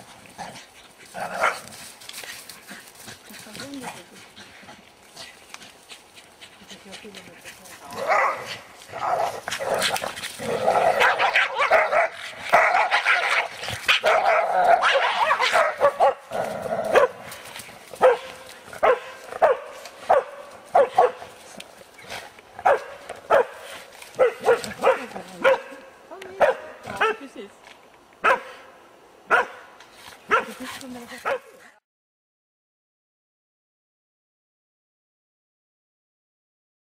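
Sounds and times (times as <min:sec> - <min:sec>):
dogs barking and yapping: 0:00.0 - 0:04.9, 0:05.6 - 0:27.3, 0:28.2 - 0:28.7, 0:29.3 - 0:31.7.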